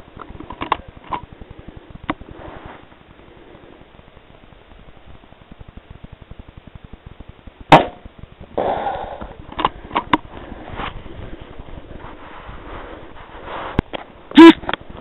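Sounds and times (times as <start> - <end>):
rustling: 0.0 - 15.0
rifle shot: 7.7 - 8.8.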